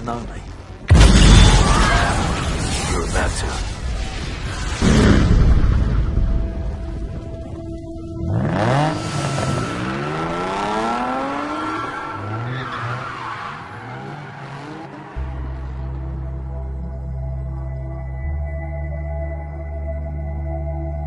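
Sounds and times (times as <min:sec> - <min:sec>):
low music drone: 0:00.0 - 0:11.3, 0:15.1 - 0:21.0
sports car engine revving: 0:08.2 - 0:12.5.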